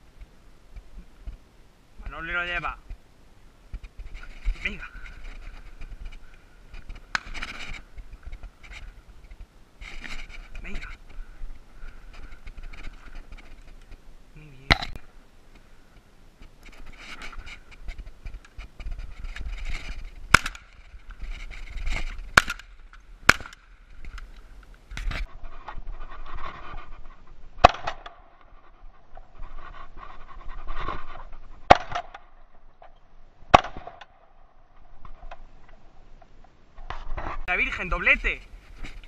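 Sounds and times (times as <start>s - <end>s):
shotgun shots: 20.3s - 20.7s, 22.4s - 22.7s, 23.3s - 23.6s.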